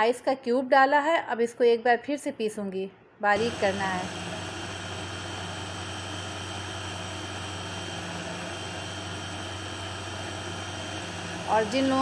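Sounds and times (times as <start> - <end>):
electric chopper grinding: 3.4 - 12.0.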